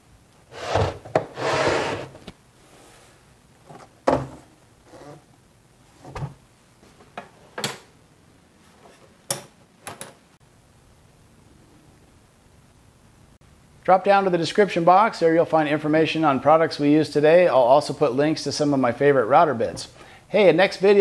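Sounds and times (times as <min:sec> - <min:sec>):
wooden cabinet doors shutting: 0:00.6 - 0:02.2.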